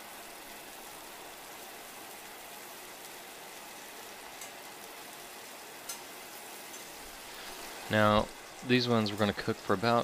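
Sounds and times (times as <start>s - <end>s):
meat sizzling in oil: 0.0s - 10.0s.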